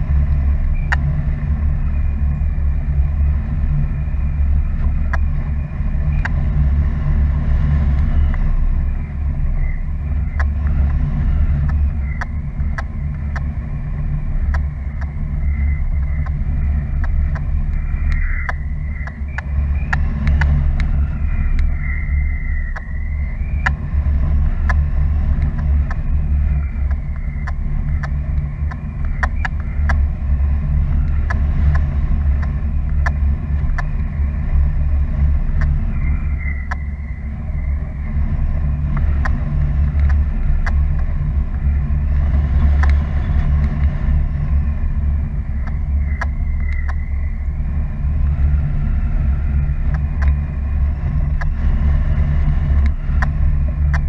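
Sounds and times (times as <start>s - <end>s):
thin wavering high tone: 0.0s - 54.0s
wind rumbling over microphone: 0.0s - 54.0s
clicks: 15.9s - 21.8s, 26.8s - 30.1s, 45.6s - 47.1s.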